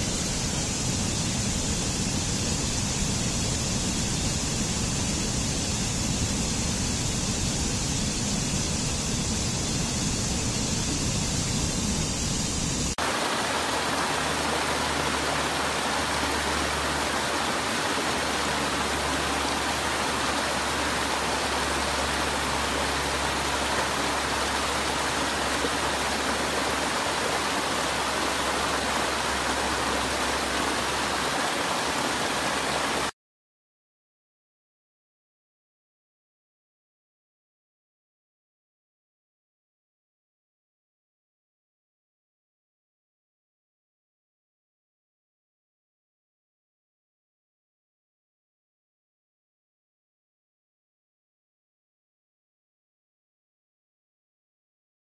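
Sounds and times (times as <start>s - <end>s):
stream cascading over rocks: 13.0s - 33.1s.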